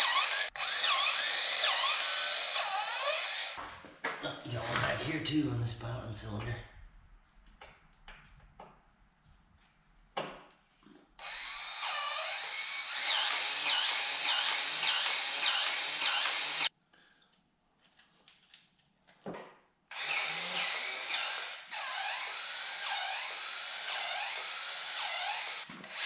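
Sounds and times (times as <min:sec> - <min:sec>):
grease gun motor whine: 0:00.0 - 0:03.6, 0:11.2 - 0:16.7, 0:19.9 - 0:26.0.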